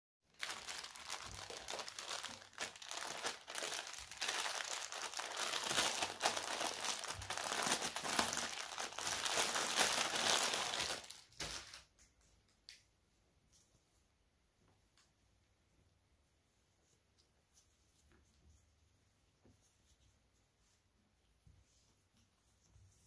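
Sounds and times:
plastic bag crinkling: 0.3s - 12.0s.

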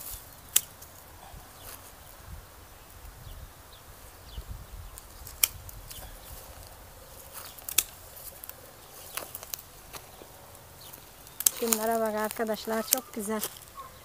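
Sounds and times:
pruning shears snipping: 0.0s - 1.0s, 5.0s - 10.2s, 10.8s - 13.8s.

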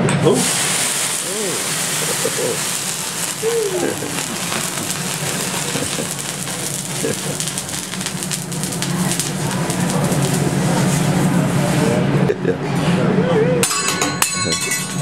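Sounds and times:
steady low hum: 0.0s - 15.0s
crackling spatters: 0.3s - 11.8s
griddle sizzling and hissing: 0.3s - 12.2s.

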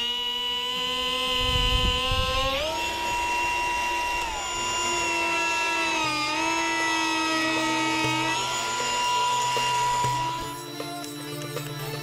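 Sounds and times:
die grinder whining: 0.0s - 12.0s
grinding into wood: 0.0s - 12.0s.

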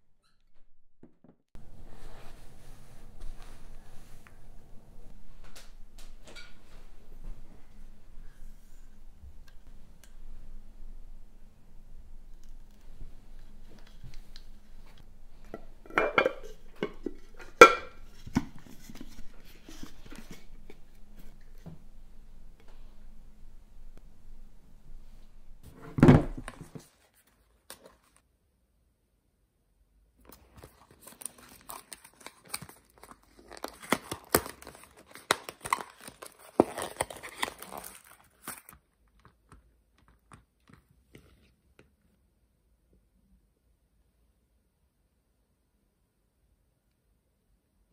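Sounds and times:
cardboard box being opened: 30.6s - 38.7s.

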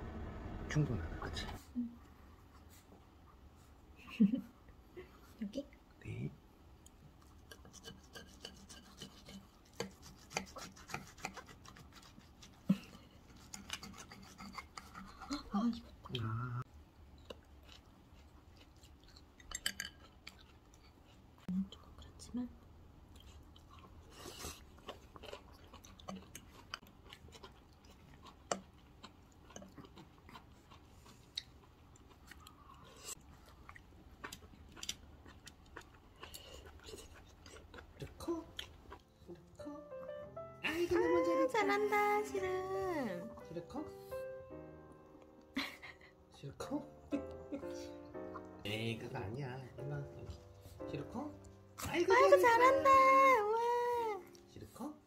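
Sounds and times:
chewing food: 6.8s - 39.6s, 47.1s - 49.2s
cutlery scraping a plate: 7.5s - 9.5s, 13.5s - 15.3s, 19.5s - 20.0s.

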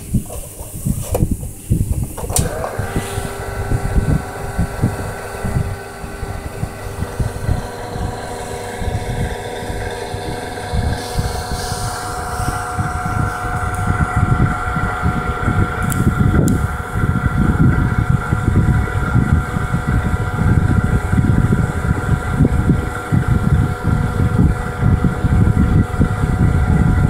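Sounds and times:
low rumble: 0.0s - 27.0s
tape rewinder motor whine: 2.1s - 27.0s.

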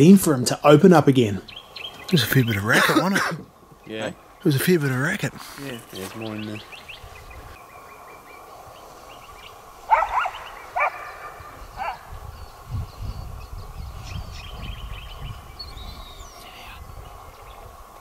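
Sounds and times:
dog barking: 9.9s - 12.0s.

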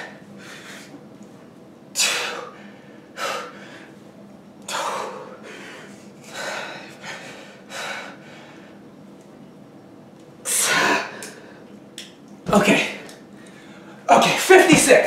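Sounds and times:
man breathing hard and gasping: 2.0s - 4.0s, 4.7s - 8.8s.

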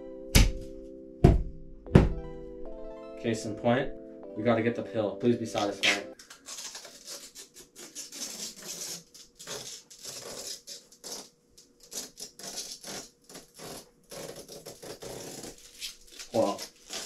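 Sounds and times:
plastic film crinkling rustle: 6.2s - 17.0s.

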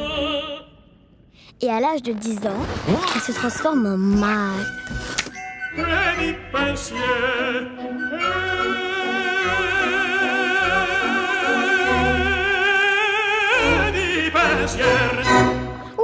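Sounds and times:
opera singing voice with vibrato: 0.0s - 1.0s, 5.7s - 16.0s.

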